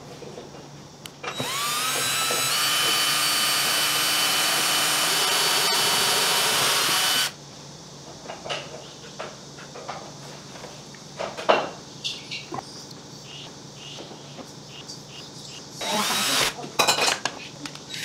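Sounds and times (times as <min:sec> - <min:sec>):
power tool whining: 0:01.3 - 0:07.4, 0:15.8 - 0:16.6.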